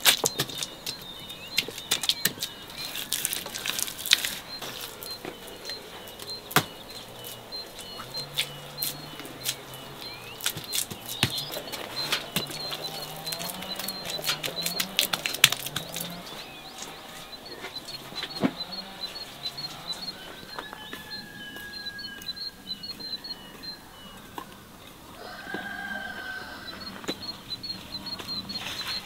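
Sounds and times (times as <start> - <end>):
sharp irregular clicks and crackles: 0.0 - 20.7
small birds chirping: 0.0 - 29.0.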